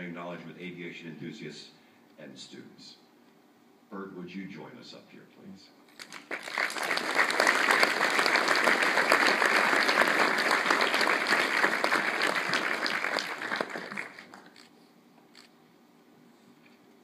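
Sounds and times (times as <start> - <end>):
large audience applauding: 6.0 - 14.7.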